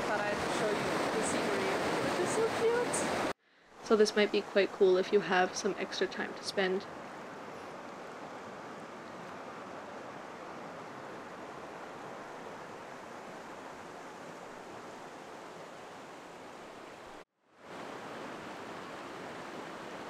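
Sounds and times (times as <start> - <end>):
creek rushing over rocks: 0.0 - 3.4.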